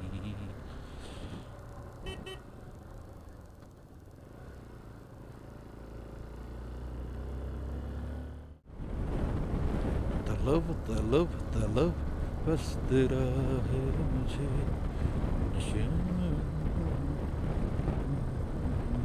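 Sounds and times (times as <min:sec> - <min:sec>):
motorcycle engine rumble: 0:00.0 - 0:19.0
horn beeps: 0:02.0 - 0:02.4.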